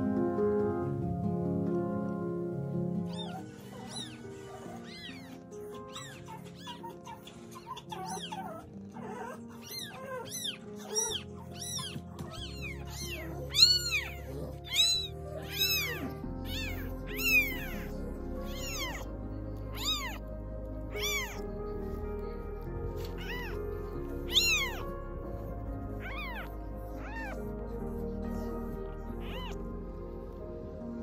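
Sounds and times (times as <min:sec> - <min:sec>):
background music with low bass: 0:00.0 - 0:31.0
kitten mewing: 0:03.1 - 0:19.1, 0:19.7 - 0:20.2, 0:20.9 - 0:21.4, 0:23.0 - 0:29.6.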